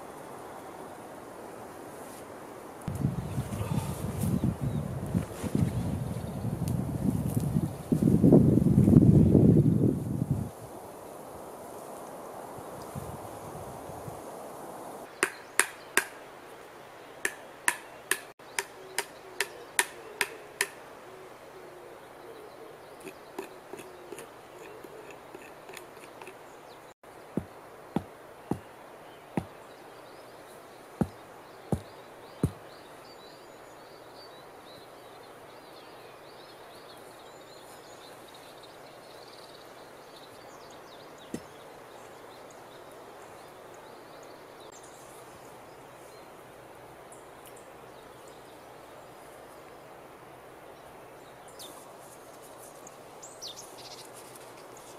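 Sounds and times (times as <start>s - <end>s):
bird calls: 3.2s - 4.8s, 17.1s - 45.0s
blade chopping wood: 31.0s - 32.6s
stake pounded into ground: 31.0s - 32.6s.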